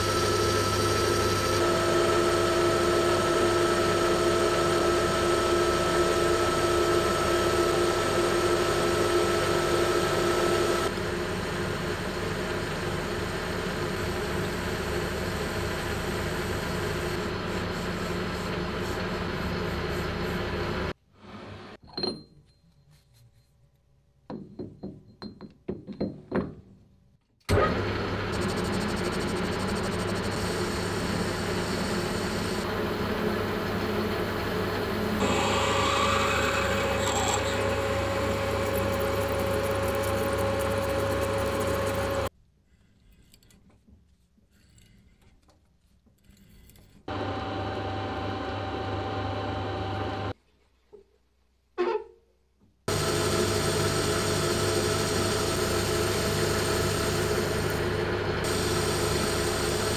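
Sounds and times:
metal lathe drilling: 0.0s - 10.9s, 28.2s - 42.3s, 52.9s - 59.9s.

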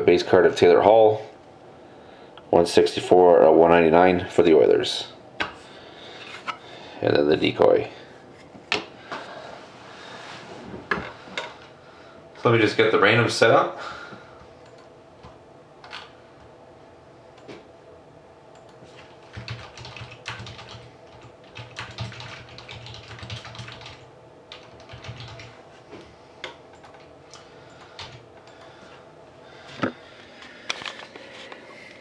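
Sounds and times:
typing on computer keyboard: 18.6s - 25.6s, 26.4s - 28.6s.

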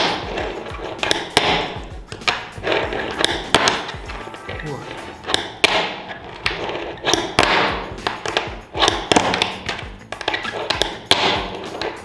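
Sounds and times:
fingerboard clacking on tabletop: 5.2s - 12.0s.

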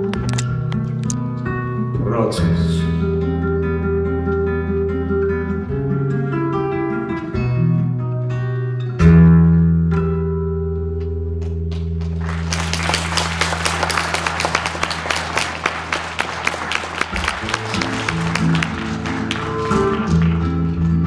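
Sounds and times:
acoustic guitars picking: 0.0s - 21.0s
audience applause: 12.0s - 21.0s.

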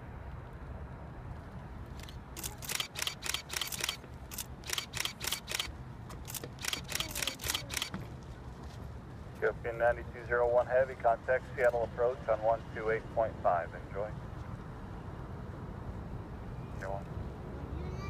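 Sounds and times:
camera shutter clicks: 2.0s - 8.0s.

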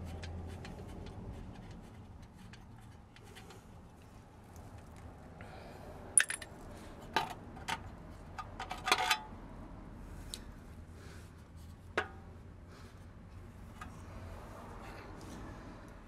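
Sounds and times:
metallic clink: 6.2s - 6.5s.

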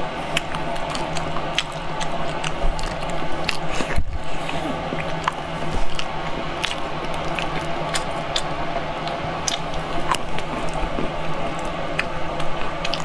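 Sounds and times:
steady low background hum: 0.0s - 13.0s
wet chewing and smacking: 0.2s - 13.0s.

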